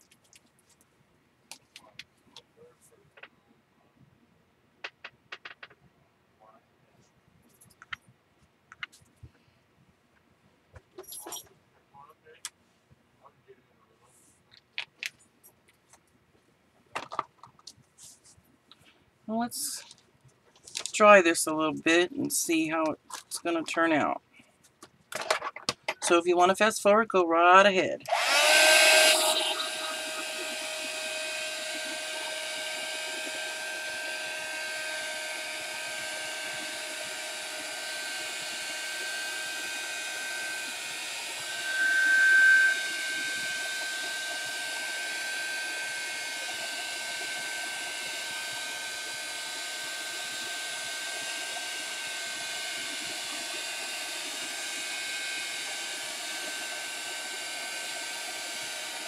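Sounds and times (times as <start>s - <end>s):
hot-air tool blowing: 28.0s - 59.0s.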